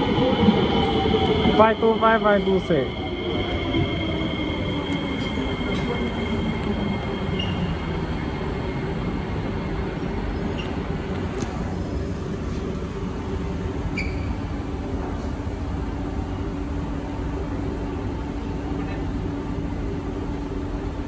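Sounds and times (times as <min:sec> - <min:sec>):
train wheels rumbling: 0:00.0 - 0:21.0
high-pitched braking whine: 0:00.4 - 0:08.8.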